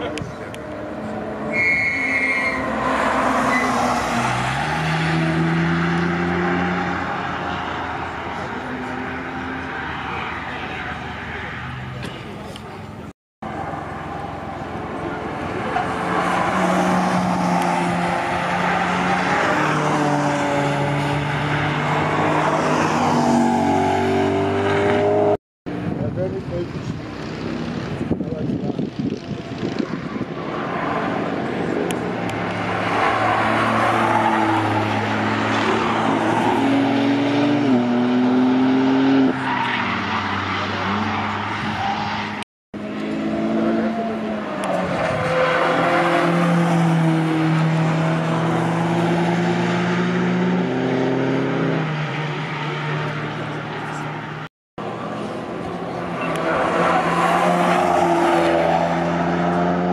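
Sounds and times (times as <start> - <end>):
race car engine: 0.0 - 59.9
second race car engine: 0.0 - 59.9
car engine accelerating hard: 29.4 - 41.9, 42.8 - 54.4.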